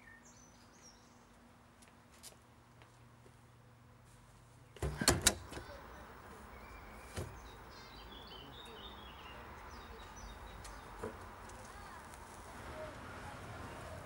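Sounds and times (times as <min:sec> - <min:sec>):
faint birds chirping: 0:00.0 - 0:01.8, 0:03.4 - 0:12.0
street ambience: 0:00.0 - 0:14.0.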